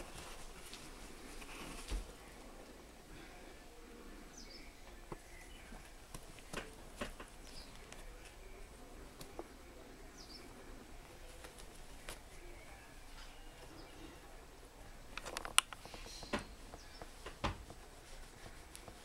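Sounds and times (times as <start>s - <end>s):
rustling of fur and fabric: 0.0s - 2.7s, 11.0s - 13.8s, 15.2s - 19.0s.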